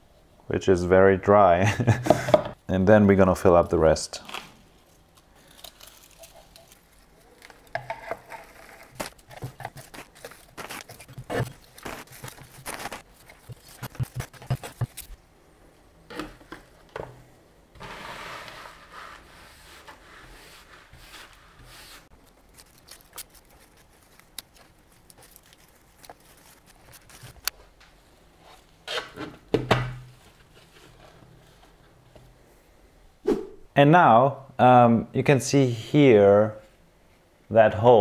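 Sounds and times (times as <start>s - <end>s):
leaves rustling: 4.2s - 15.2s, 20.8s - 27.5s
brush sweeping soil into dustpan: 17.8s - 22.1s.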